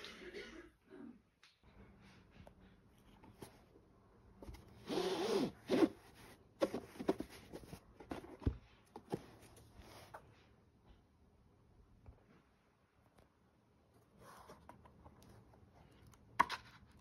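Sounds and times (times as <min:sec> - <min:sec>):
book taps and scuffs: 0:06.6 - 0:10.2.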